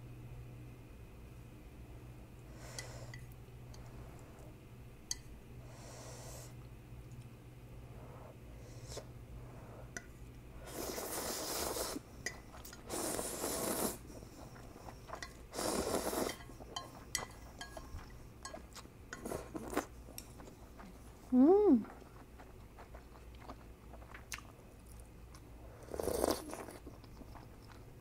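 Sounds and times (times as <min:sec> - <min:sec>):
person slurping noodles: 0:10.6 - 0:12.0, 0:12.9 - 0:14.0, 0:15.5 - 0:16.4, 0:25.8 - 0:26.8.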